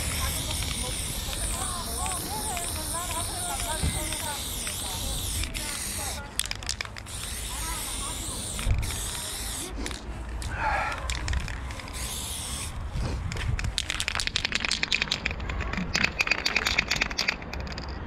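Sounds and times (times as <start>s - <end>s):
spray-paint can hissing: 0.0s - 13.0s
spray can ball rattling: 0.0s - 18.0s.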